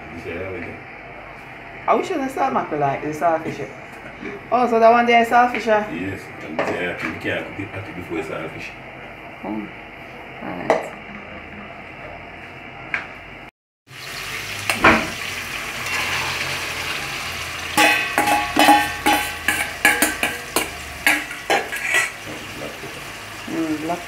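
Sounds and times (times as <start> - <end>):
food sizzling in oil: 13.9 - 24.0
spoon scraping metal pot: 15.8 - 17.0, 17.8 - 22.2.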